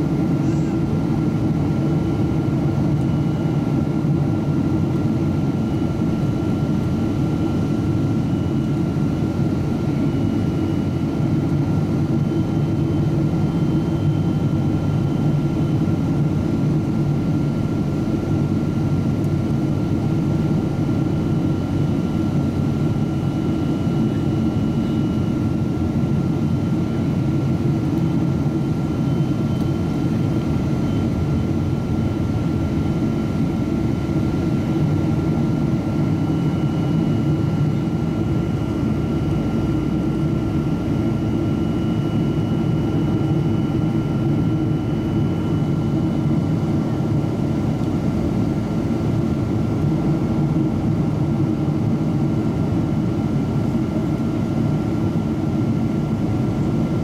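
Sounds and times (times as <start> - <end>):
engine and airflow rumble: 0.0 - 57.0.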